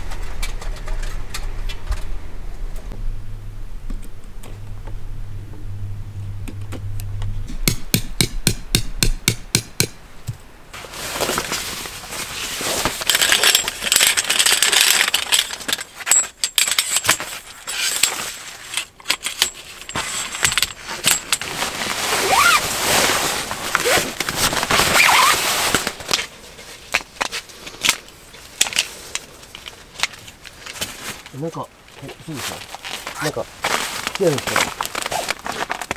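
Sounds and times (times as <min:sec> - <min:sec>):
low hum: 0:00.0 - 0:10.8
nylon fabric rustling: 0:10.7 - 0:15.8, 0:19.7 - 0:35.9
metal poles clinking: 0:12.9 - 0:21.7.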